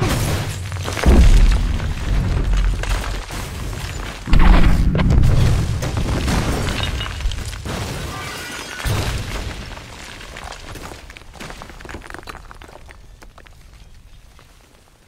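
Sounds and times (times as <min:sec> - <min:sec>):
building explosion blasts: 0:00.0 - 0:08.2
debris shattering: 0:00.0 - 0:14.1
deep rumble: 0:04.2 - 0:07.5.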